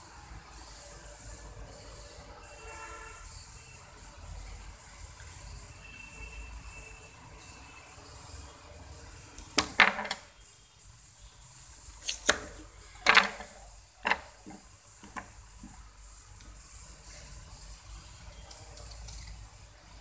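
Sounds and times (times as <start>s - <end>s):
knife chopping carrot: 12.0s - 12.6s.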